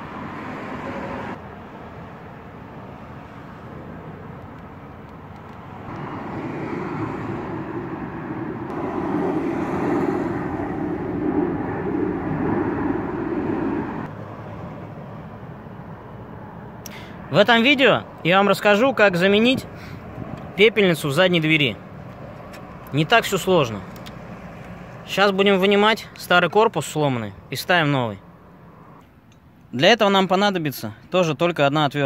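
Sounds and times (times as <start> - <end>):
distant engine rumble: 5.4 - 17.3.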